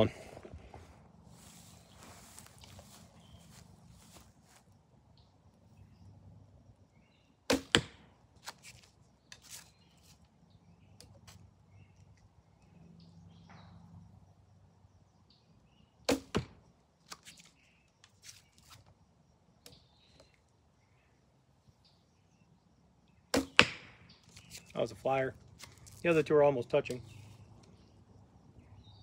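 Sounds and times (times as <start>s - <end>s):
arrow thudding into target: 7.5s - 8.1s, 16.1s - 17.2s, 23.3s - 24.0s.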